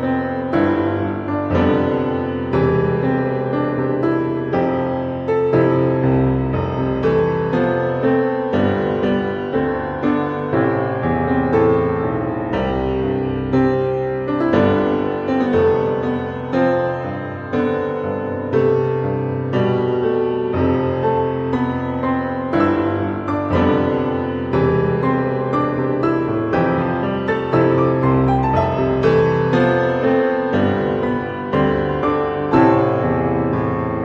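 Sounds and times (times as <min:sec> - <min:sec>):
piano music: 0:00.0 - 0:34.0.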